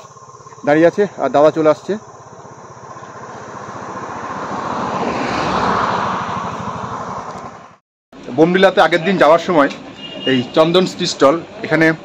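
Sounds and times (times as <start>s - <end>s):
motorcycle engine passing by: 0.0s - 7.8s.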